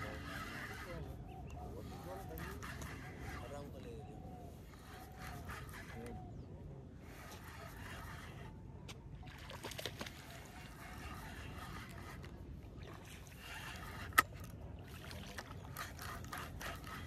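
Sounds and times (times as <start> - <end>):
fishing reel ratcheting whir: 13.3 - 14.5.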